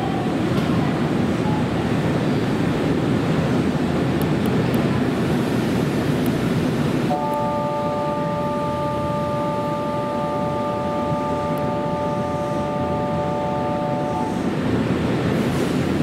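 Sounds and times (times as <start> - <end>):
railway station din: 0.0 - 16.0
electronic chord: 7.1 - 14.4.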